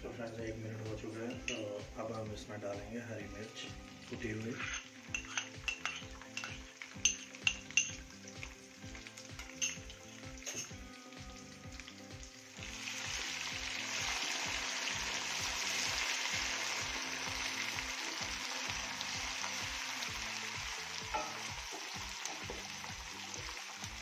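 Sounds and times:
onions sizzling in hot oil: 0:00.0 - 0:24.0.

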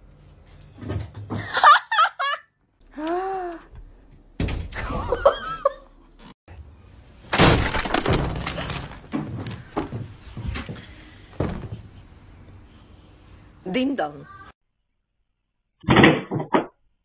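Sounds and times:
loud crash of something breaking: 0:07.3 - 0:09.2.

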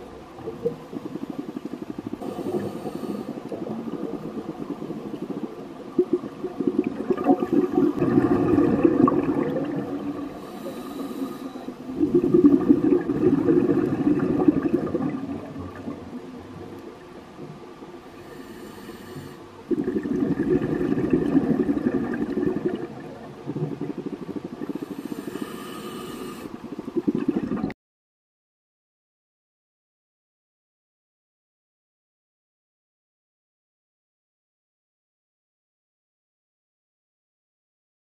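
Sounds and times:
bubbling underwater exhalations: 0:00.3 - 0:16.2, 0:19.7 - 0:25.6, 0:26.5 - 0:27.8
regulator inhalation hiss: 0:02.2 - 0:03.5, 0:10.3 - 0:12.0, 0:18.2 - 0:19.5, 0:24.7 - 0:26.6.

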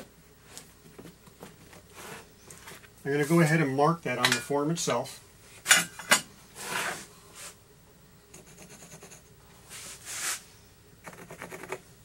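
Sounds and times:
pencil scratching on wood: 0:08.4 - 0:09.3, 0:11.0 - 0:11.8.

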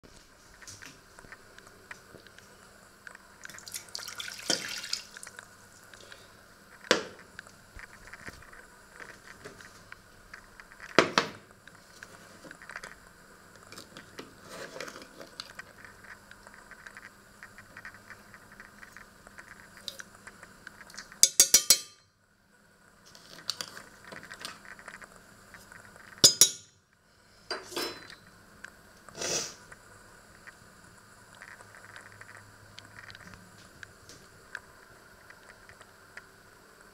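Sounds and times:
faint steady hum: 0:00.0 - 0:36.9
metal spoon clinking on pot: 0:21.2 - 0:22.1.

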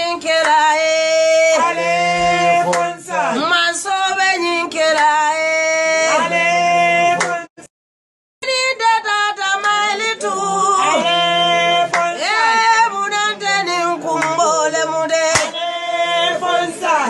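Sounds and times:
woman singing: 0:00.0 - 0:02.5, 0:03.2 - 0:06.2, 0:08.4 - 0:15.6.

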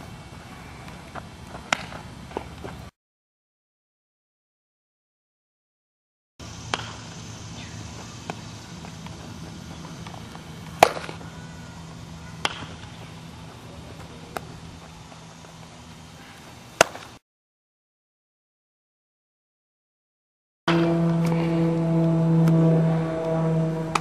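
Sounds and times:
balls smacking into gloves: 0:00.9 - 0:02.8, 0:10.0 - 0:11.2, 0:12.4 - 0:12.9, 0:16.8 - 0:17.1
bat hitting balls: 0:01.7 - 0:02.6, 0:06.6 - 0:07.1, 0:10.0 - 0:11.3, 0:12.3 - 0:13.0, 0:16.8 - 0:17.1, 0:20.7 - 0:22.6, 0:23.2 - 0:24.0
steady low hum: 0:06.4 - 0:17.2, 0:20.7 - 0:24.0.

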